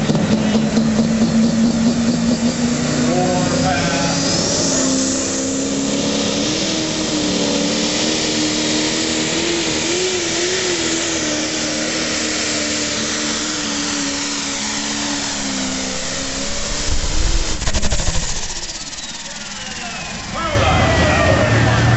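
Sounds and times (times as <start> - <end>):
tractor engine running flat out: 0.0 - 21.9
loud low rumble: 13.6 - 21.9.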